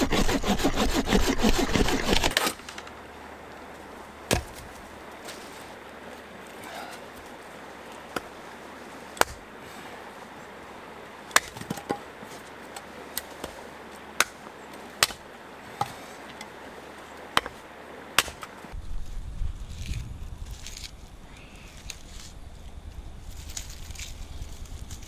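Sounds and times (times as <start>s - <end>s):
hatchet chopping firewood: 0.0s - 2.6s, 4.3s - 4.7s, 9.2s - 9.5s, 11.3s - 12.1s, 14.2s - 15.2s, 17.3s - 17.6s, 18.2s - 18.6s.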